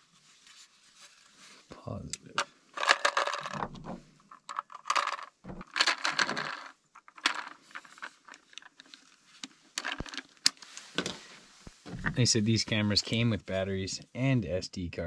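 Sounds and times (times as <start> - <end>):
plastic housing clicks and rattles: 2.2 - 11.2
batteries clinking: 2.3 - 11.2.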